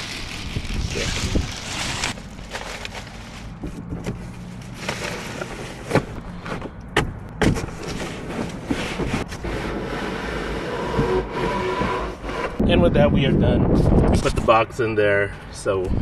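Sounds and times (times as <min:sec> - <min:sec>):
wind noise on microphone: 0:00.0 - 0:02.2, 0:10.9 - 0:14.6
knocks and thumps around car: 0:05.8 - 0:09.4.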